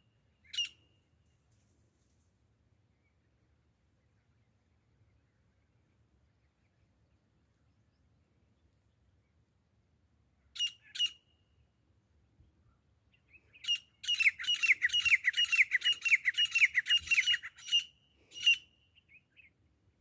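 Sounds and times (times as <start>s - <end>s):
francolin harsh calls: 13.5s - 18.8s.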